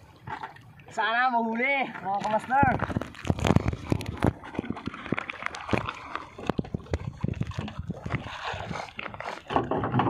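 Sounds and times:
water sloshing: 0.0s - 10.0s
knocks and clatter: 9.5s - 10.0s.

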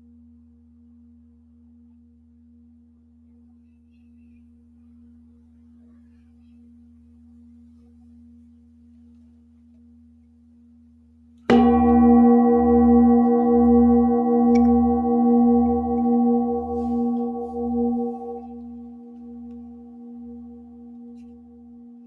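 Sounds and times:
singing bowl ringing: 11.5s - 22.0s
wooden mallet striking bowl: 11.5s - 22.0s.

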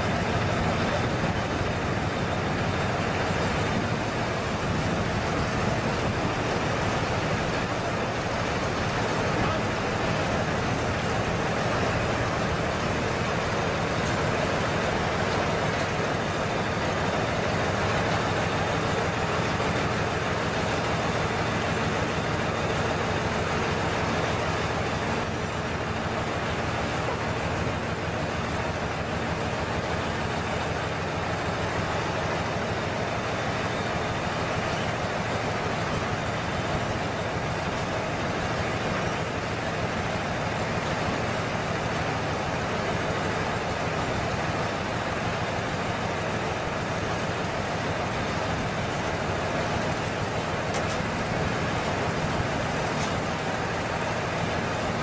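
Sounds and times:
heavy truck engine running: 0.0s - 55.0s.

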